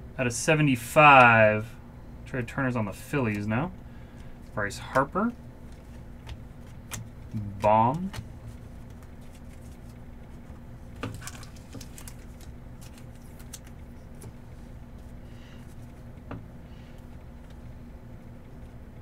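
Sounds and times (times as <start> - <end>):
steady low hum: 0.0 - 19.0
trading cards being handled: 4.9 - 16.0.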